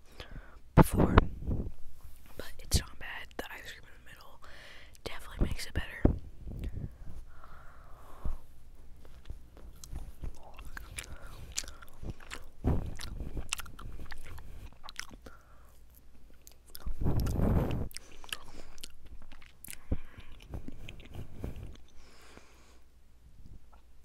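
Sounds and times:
chewing with wet mouth clicks: 0:09.0 - 0:22.0.

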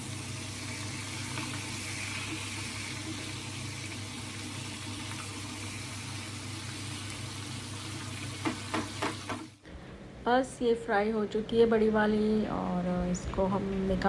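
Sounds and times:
fish sizzling in a pan: 0:00.0 - 0:09.6.

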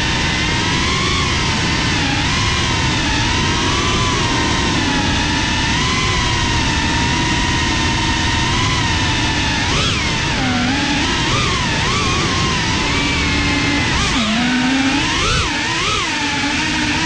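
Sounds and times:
drone motors whining: 0:00.0 - 0:17.0
rush of air: 0:02.6 - 0:07.3.

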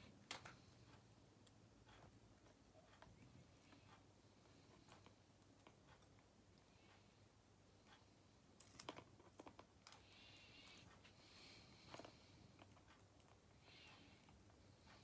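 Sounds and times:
soft rustling of tape: 0:07.8 - 0:15.0.

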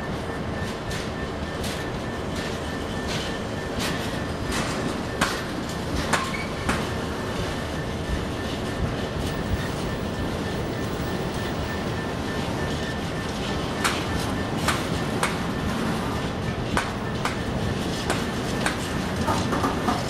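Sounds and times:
train wheels rumbling on rails: 0:00.0 - 0:20.0
high wheel squeal: 0:06.2 - 0:07.6.

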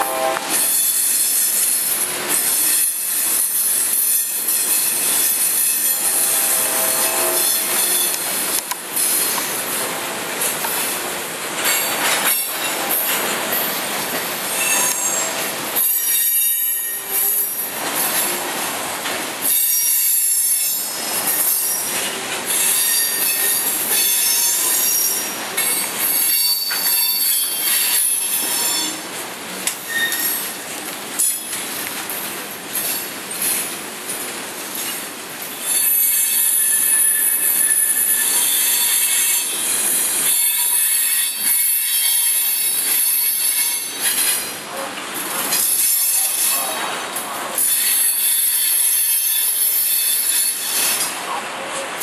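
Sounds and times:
train wheels rumbling on rails: 0:00.0 - 0:52.0
high-pitched wheel squeals: 0:14.5 - 0:17.6, 0:22.5 - 0:29.0, 0:29.8 - 0:30.5, 0:35.6 - 0:44.3.

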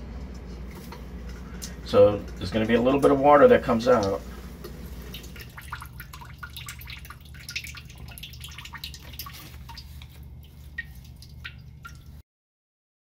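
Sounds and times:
low steady hum: 0:00.0 - 0:12.2
water dripping into metal bowl: 0:03.9 - 0:12.2.

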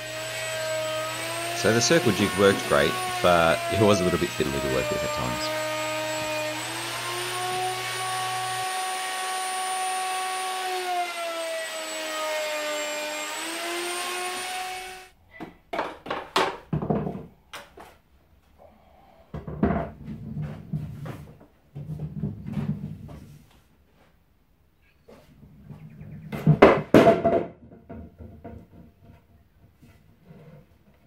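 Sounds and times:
electric router whining: 0:00.0 - 0:15.2
wooden blanks knocking and scraping: 0:15.4 - 0:18.0, 0:19.3 - 0:23.3, 0:25.1 - 0:31.0.

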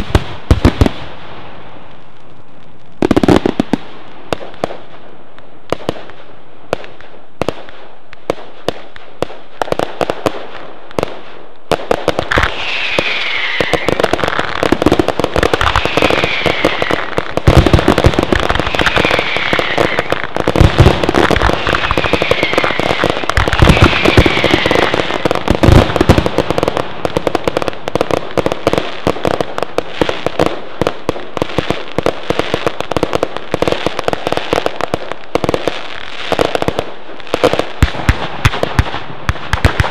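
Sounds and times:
heavy firework booms: 0:00.0 - 0:01.6, 0:08.3 - 0:35.6, 0:36.4 - 0:39.9
fireworks bangs and crackling: 0:00.0 - 0:39.9
falling firework whistles: 0:12.3 - 0:14.8, 0:15.4 - 0:26.2.

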